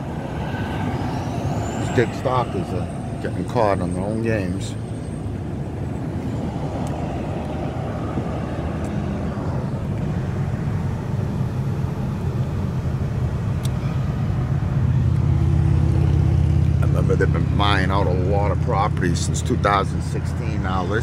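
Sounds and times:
engine running nearby: 0.0 - 21.0
road traffic rumble: 0.0 - 21.0.

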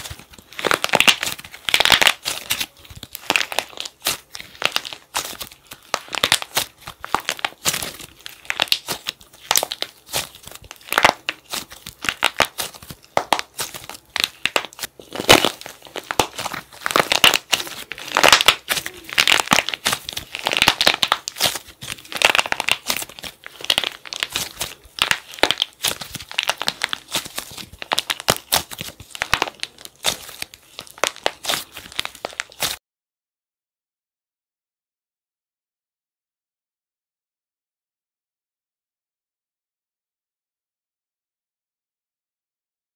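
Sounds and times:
hardened plaster crunching: 0.0 - 32.8.

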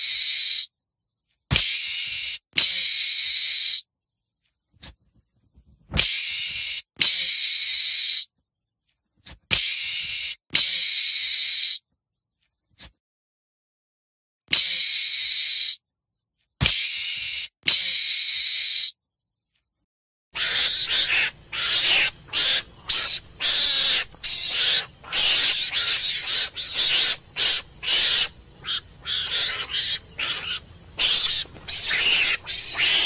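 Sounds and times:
meerkat hissing calls: 14.5 - 15.8, 16.6 - 18.9, 20.4 - 33.0.

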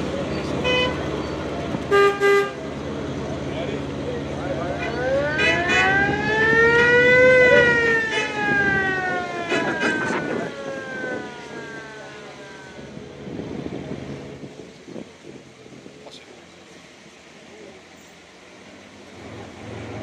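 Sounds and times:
siren wailing: 4.6 - 12.9.

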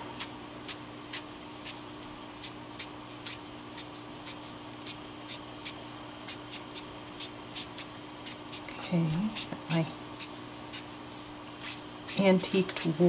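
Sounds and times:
faint steady hum: 0.0 - 13.0
marker ticking on paper: 2.4 - 9.6.

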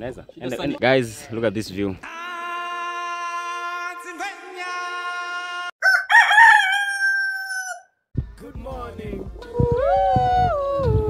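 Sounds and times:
rooster crowing: 5.8 - 8.0.

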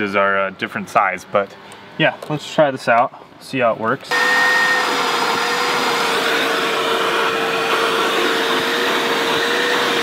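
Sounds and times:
vacuum motor whine: 4.1 - 10.0.

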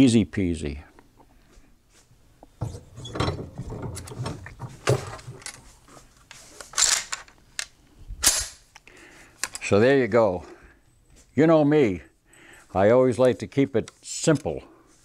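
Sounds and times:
rifle being handled: 4.1 - 9.8.

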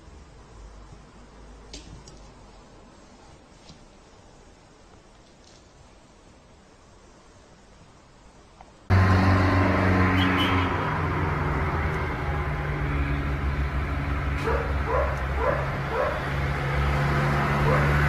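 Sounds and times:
vehicle engine humming: 8.9 - 18.0
dog yipping: 14.4 - 16.2.

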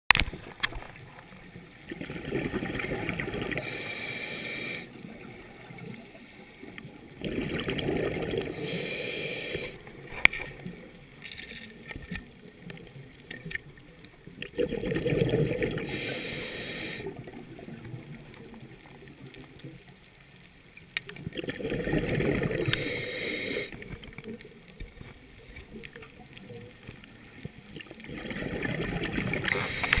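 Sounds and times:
gurgling exhaled bubbles: 1.8 - 3.8, 6.8 - 8.9, 14.3 - 19.6, 21.1 - 23.0, 27.7 - 30.0
regulator breath hiss: 3.6 - 4.9, 8.5 - 9.8, 15.8 - 17.1, 22.6 - 23.8, 29.5 - 30.0.

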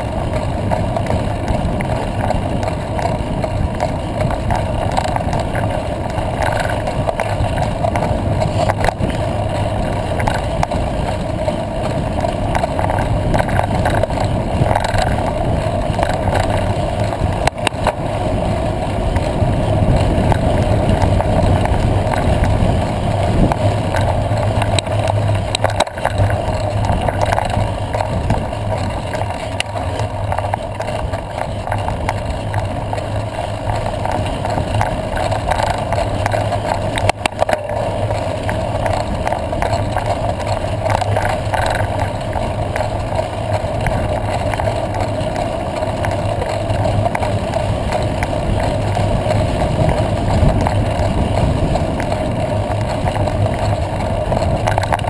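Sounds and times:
bicycle rattling: 0.0 - 55.0
bicycle tyres on gravel: 0.0 - 55.0.

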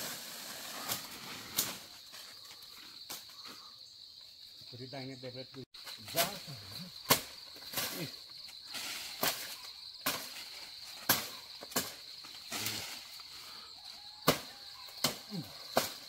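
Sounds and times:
blade chopping branches: 0.0 - 2.3, 7.0 - 8.1, 8.7 - 13.0, 14.2 - 16.0
insects buzzing: 0.0 - 16.0.

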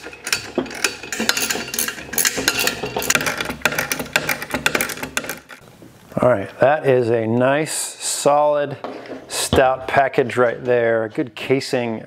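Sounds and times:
metal tool clinking on metal: 0.0 - 5.5
ratcheting wrench clicking: 0.0 - 5.6.

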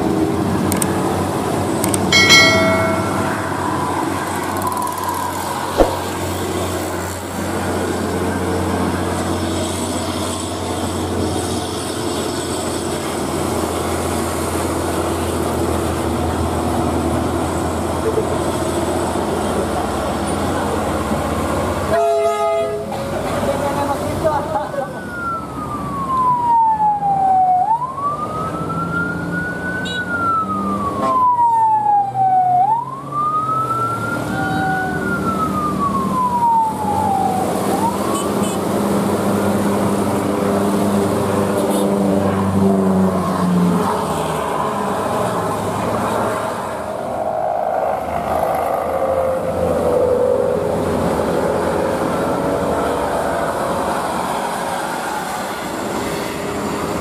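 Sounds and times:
traffic noise: 0.0 - 57.0
siren wailing: 24.8 - 38.7, 46.8 - 55.6.

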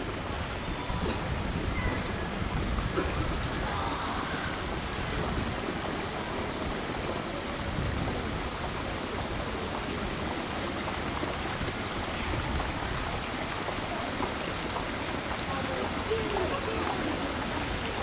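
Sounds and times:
water rushing: 0.0 - 18.0.

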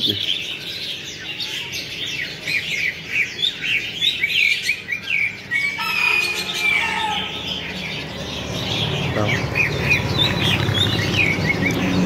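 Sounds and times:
birds chirping: 0.0 - 12.0
harsh bird call: 0.0 - 12.0.

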